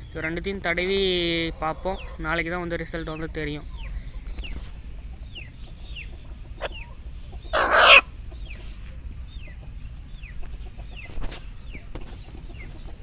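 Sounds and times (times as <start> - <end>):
chickens chirping: 0.0 - 13.0
low steady background hum: 0.0 - 13.0.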